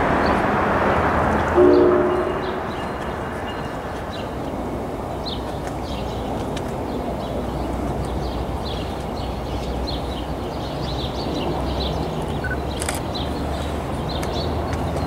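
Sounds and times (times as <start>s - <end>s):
distant diesel train rumble: 0.0s - 12.6s
small birds chirping: 1.4s - 15.0s.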